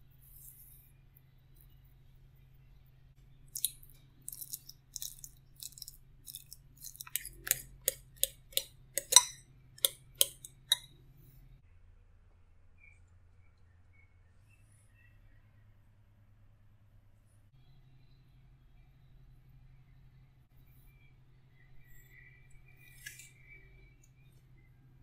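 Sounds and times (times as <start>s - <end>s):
fork squishing banana: 3.6s - 10.8s
fork clinking on glass bowl: 4.4s - 10.8s.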